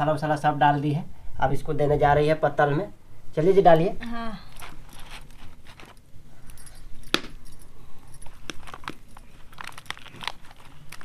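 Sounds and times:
bangles clinking: 4.4s - 11.0s
hands patting dough: 8.3s - 11.0s.

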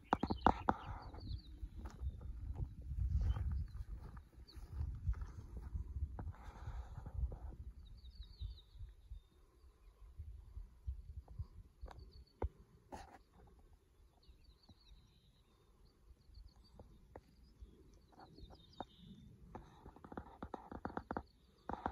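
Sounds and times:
faint high-pitched chirping: 0.0s - 5.4s, 7.6s - 21.9s
wind buffeting microphone: 0.0s - 12.2s.

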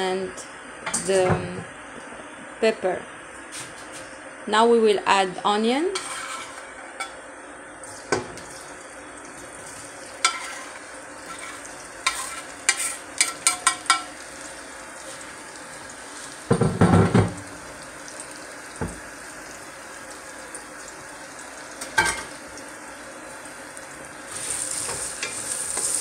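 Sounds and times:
onion sizzling in hot oil: 6.0s - 7.2s, 7.8s - 26.0s.

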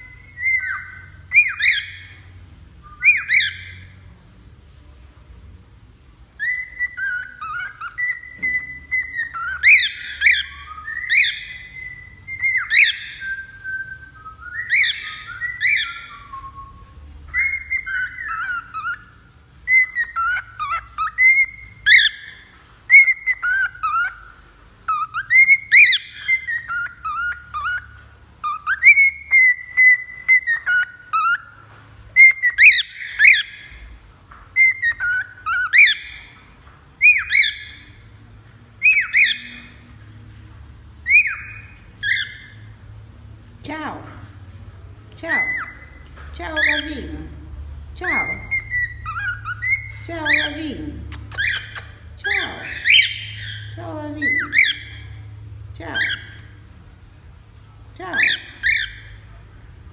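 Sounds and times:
cockatiel whistling: 0.0s - 2.2s, 2.8s - 3.9s, 6.4s - 33.7s, 34.6s - 36.4s, 37.0s - 37.8s, 38.8s - 39.7s, 41.0s - 42.7s, 48.1s - 50.5s.

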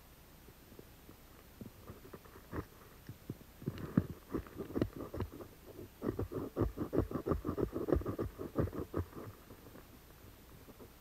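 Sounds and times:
tinder scraping and rustling: 1.7s - 9.9s.

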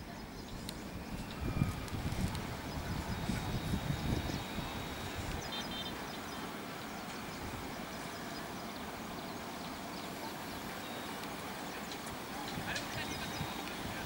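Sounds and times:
bird chirping: 0.0s - 11.2s
outdoor background noise: 0.0s - 14.0s.

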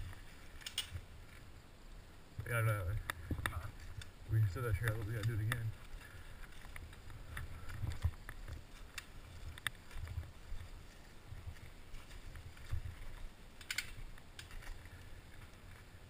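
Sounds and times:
bike clicks and rattles: 0.0s - 1.5s, 4.8s - 16.0s.

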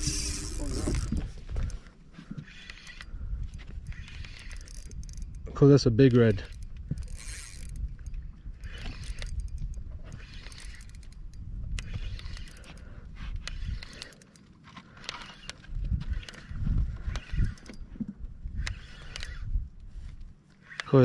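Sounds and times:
wind rumbling on microphone: 0.0s - 14.2s, 15.3s - 20.4s
gear clicking: 0.0s - 17.9s, 18.5s - 19.5s, 20.5s - 21.0s.

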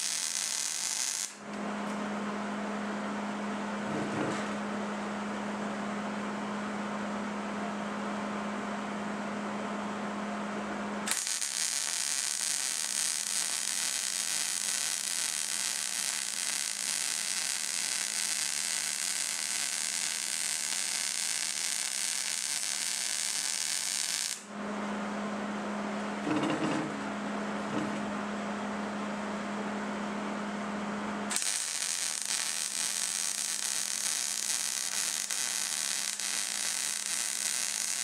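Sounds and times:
welder arc crackling buzz: 0.0s - 1.6s, 11.0s - 24.6s, 31.3s - 38.0s.

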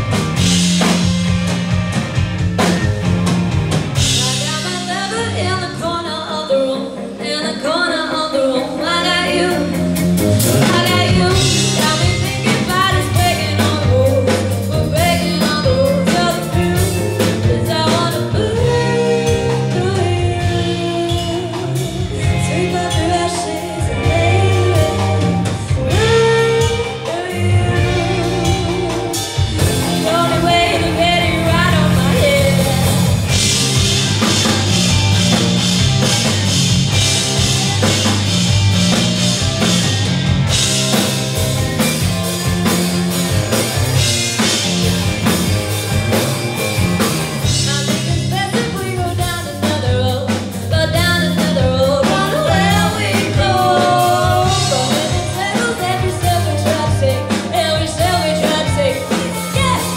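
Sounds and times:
drum kit: 0.0s - 59.9s
electric guitar: 0.0s - 59.9s
woman singing lead: 4.0s - 33.6s, 47.4s - 59.9s.

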